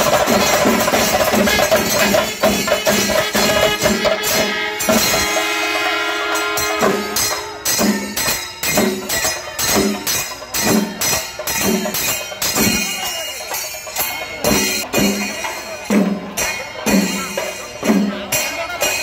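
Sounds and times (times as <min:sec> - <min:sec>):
drums beaten with sticks: 0:00.0 - 0:19.0
jingling hand cymbals: 0:00.0 - 0:19.0
brass horns blast: 0:03.3 - 0:07.3.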